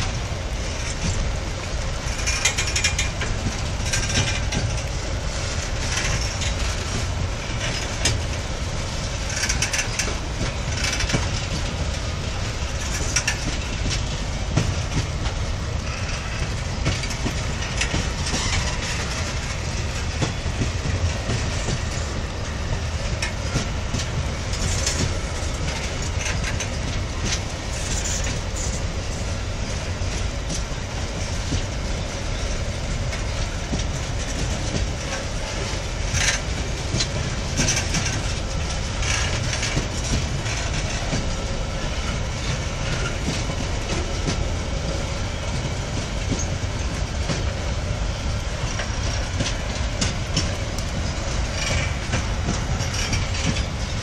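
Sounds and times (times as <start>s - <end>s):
steel wheels rumbling on rail: 0.0s - 54.0s
wagon wheels clanking: 9.0s - 12.0s, 15.8s - 20.4s, 34.0s - 41.6s.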